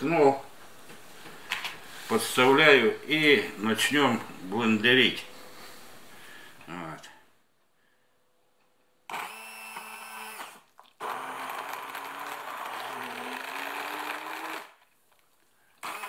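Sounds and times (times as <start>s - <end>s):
electric blender pureeing: 9.1s - 14.8s, 15.8s - 16.0s.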